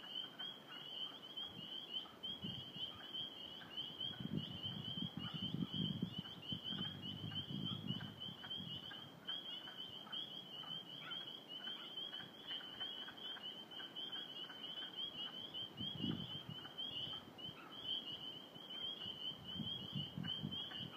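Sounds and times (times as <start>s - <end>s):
frogs peeping in chorus: 0.0s - 20.9s.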